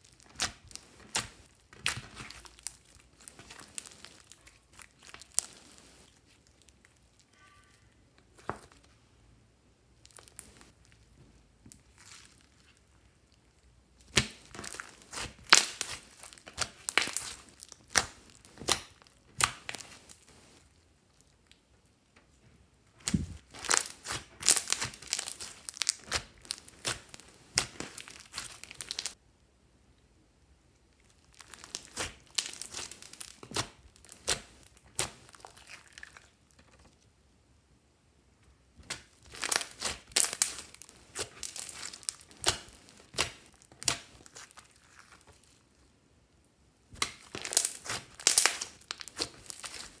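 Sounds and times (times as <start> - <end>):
slime squishing and popping: 0.0 - 7.1, 14.0 - 20.2, 23.0 - 29.2, 31.0 - 36.9, 38.8 - 45.8, 46.9 - 50.0.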